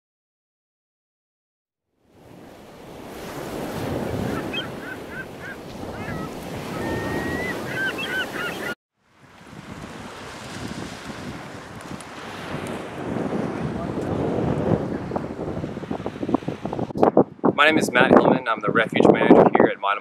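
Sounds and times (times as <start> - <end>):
surf washing on beach: 2.0 - 18.3
wind on microphone: 2.1 - 20.0
birds chirping: 4.0 - 8.8.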